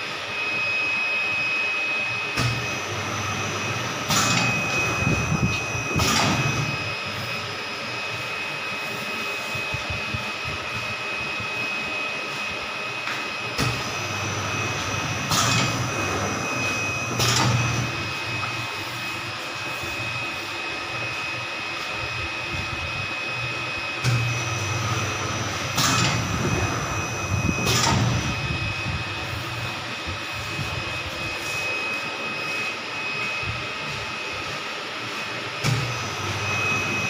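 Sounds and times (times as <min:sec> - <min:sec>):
machine whir with high whine: 0:00.0 - 0:37.0
low motor hum: 0:22.1 - 0:34.5.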